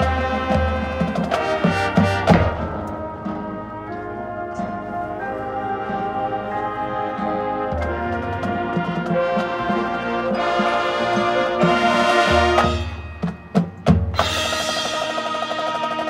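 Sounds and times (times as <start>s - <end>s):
marching band playing: 0.0s - 16.0s
sharp percussion hits: 7.8s - 16.0s.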